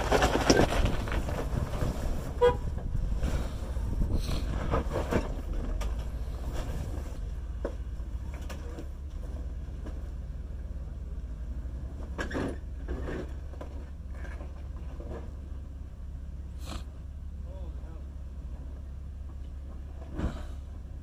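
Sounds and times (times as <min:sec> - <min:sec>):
tyres scraping over rock: 0:00.0 - 0:07.3
car engine running low: 0:00.0 - 0:21.0.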